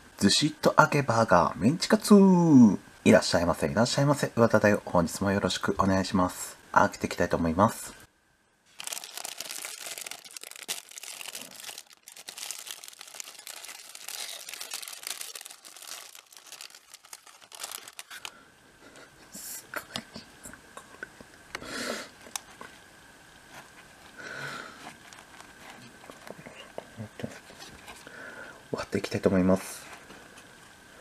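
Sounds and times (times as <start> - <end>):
plastic wrapper crinkling: 8.7 - 18.4, 24.9 - 26.4.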